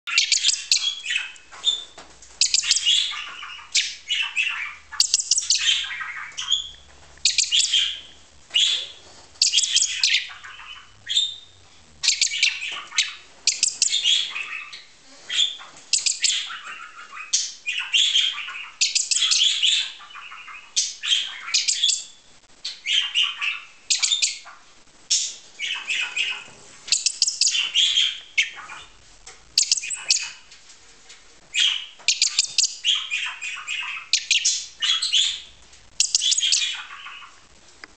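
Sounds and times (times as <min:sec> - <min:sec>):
budgerigars chattering and chirping: 0:00.1 - 0:29.0, 0:29.6 - 0:30.5, 0:31.5 - 0:37.4.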